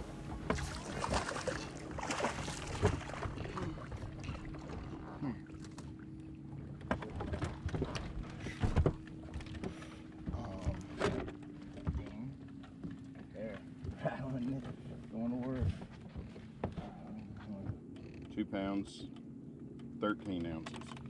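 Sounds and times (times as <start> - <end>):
water splashing: 0.0 - 9.3
boat motor humming: 0.0 - 21.0.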